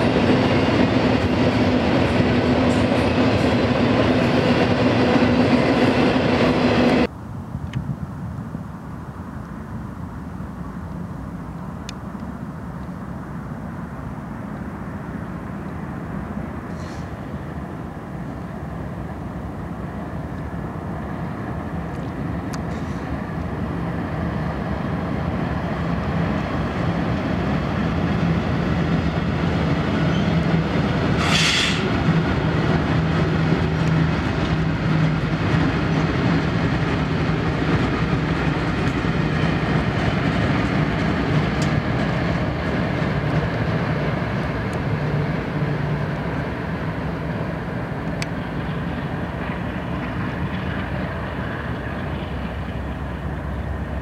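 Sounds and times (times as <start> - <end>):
diesel locomotive engine drone: 0.0 - 54.0
rumble of rolling train wheels: 0.0 - 54.0
short air hiss: 16.7 - 17.2, 22.7 - 23.2, 31.2 - 31.9.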